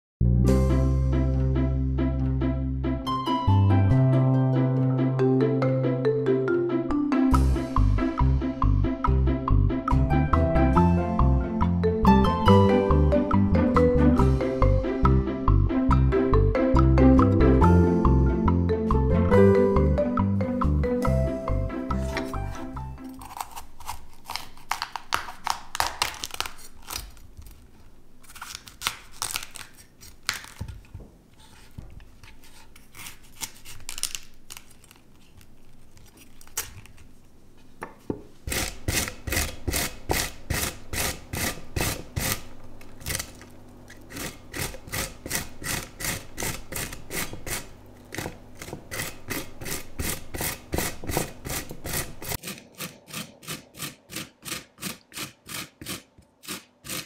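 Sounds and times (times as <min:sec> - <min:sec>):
grater rasping strokes: 0:21.9 - 0:25.5, 0:31.4 - 0:34.1, 0:38.4 - 0:57.0
knife cutting on wooden board: 0:21.9 - 0:25.5, 0:38.1 - 0:57.0.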